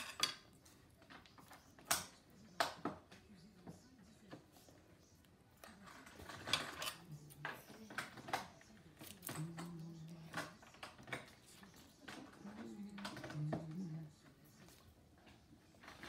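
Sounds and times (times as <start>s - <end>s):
scissors snipping: 8.1s - 11.4s.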